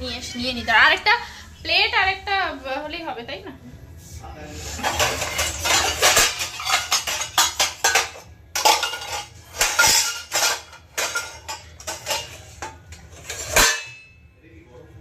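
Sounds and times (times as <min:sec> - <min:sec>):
plates and cutlery clattering: 0:04.5 - 0:14.2.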